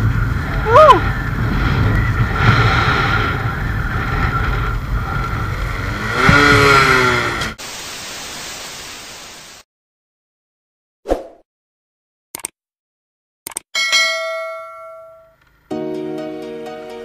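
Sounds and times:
motorcycle engine drone: 0:00.0 - 0:07.6
wind rush on microphone: 0:00.0 - 0:07.6
tv static hiss: 0:07.6 - 0:09.6.

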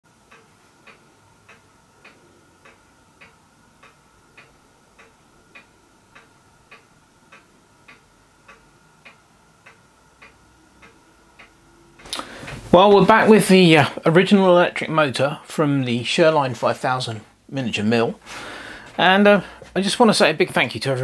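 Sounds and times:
clock ticking: 0:00.1 - 0:21.0
faint high hum: 0:00.1 - 0:21.0.

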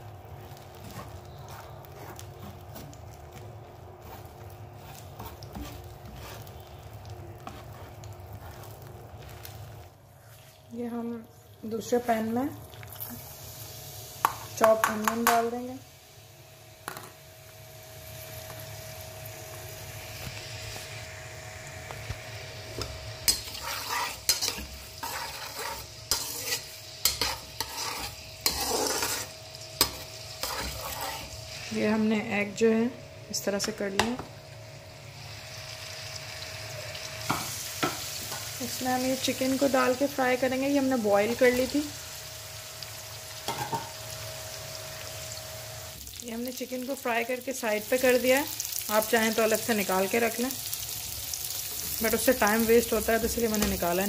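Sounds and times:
eggs sizzling in frying pan: 0:00.0 - 0:54.0
spatula scraping pan: 0:00.4 - 0:02.9, 0:04.0 - 0:10.4, 0:23.3 - 0:31.7
spoon scraping metal pan: 0:23.3 - 0:31.3.

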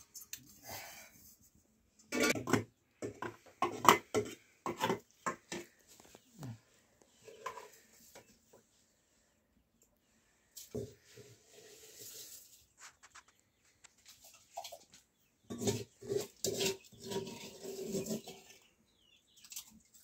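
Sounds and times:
metal pots and dishes clattering: 0:02.0 - 0:05.8, 0:15.4 - 0:18.6.

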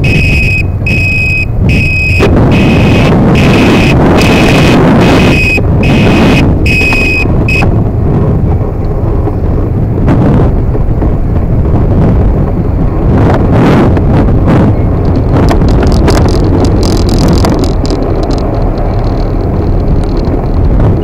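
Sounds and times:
high-pitched electronic beep: 0:00.0 - 0:07.7
electric scooter road rumble: 0:00.0 - 0:21.0
wind buffeting microphone: 0:00.0 - 0:21.0.

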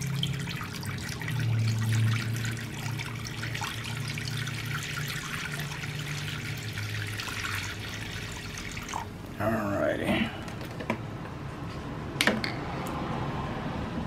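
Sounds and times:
liquid pouring and splashing on metal: 0:00.0 - 0:09.4.

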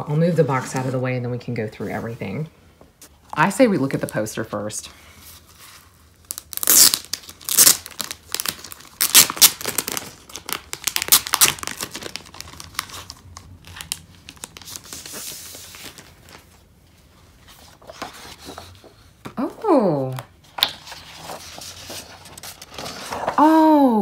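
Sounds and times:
plastic sleeve crinkling: 0:06.1 - 0:16.7.

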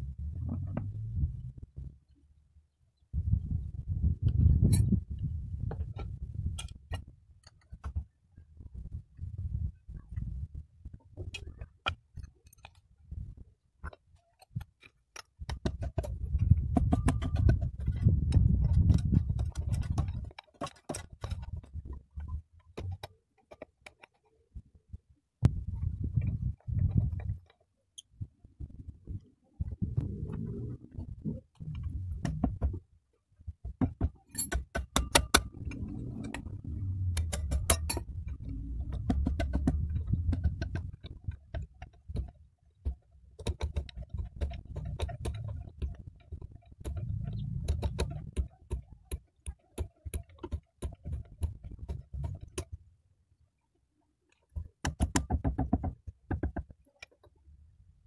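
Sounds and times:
low rumble: 0:00.0 - 0:02.1, 0:28.6 - 0:32.6, 0:35.4 - 0:41.2, 0:46.8 - 0:48.4
spanner clinking on metal: 0:34.3 - 0:36.4, 0:37.2 - 0:38.1.

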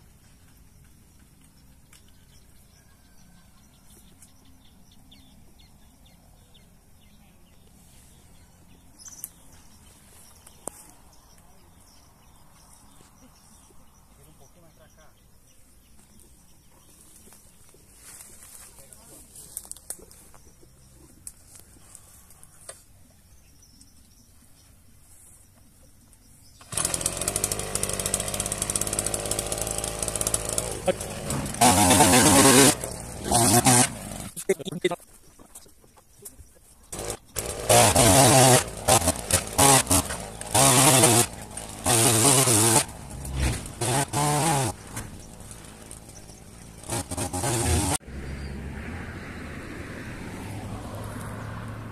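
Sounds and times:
two-stroke engine running: 0:26.6 - 0:34.4, 0:36.9 - 0:48.0.

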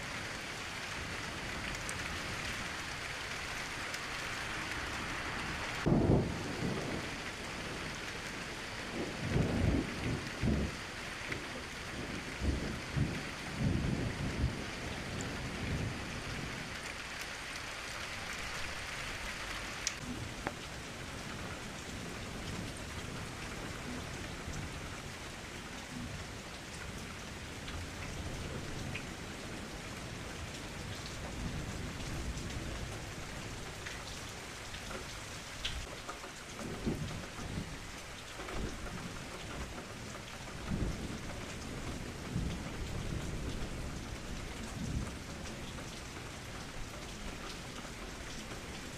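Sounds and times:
rain hissing: 0:00.0 - 0:48.9
thunder rumbling: 0:05.5 - 0:16.8, 0:36.6 - 0:48.9.

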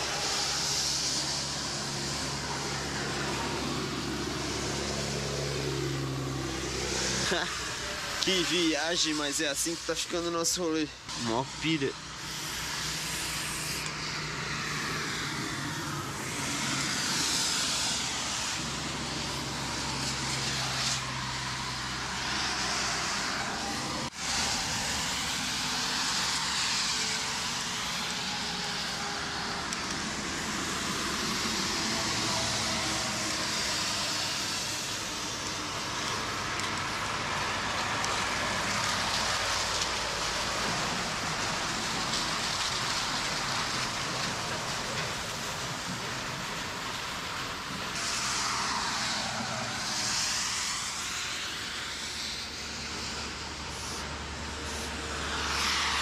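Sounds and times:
road traffic: 0:00.0 - 0:56.0
spray-paint can hissing: 0:00.1 - 0:03.4, 0:11.1 - 0:15.4, 0:48.0 - 0:56.0.

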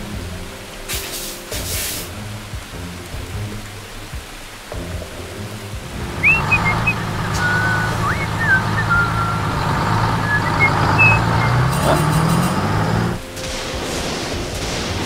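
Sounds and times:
vehicle engine humming: 0:02.1 - 0:13.3
high whistling chirps: 0:06.0 - 0:13.2.

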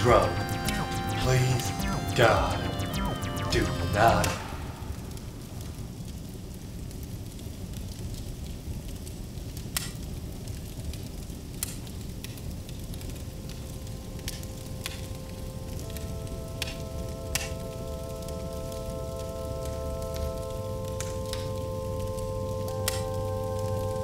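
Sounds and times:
held music notes: 0:00.0 - 0:05.6, 0:13.2 - 0:24.0
fire crackling and popping: 0:00.0 - 0:24.0.

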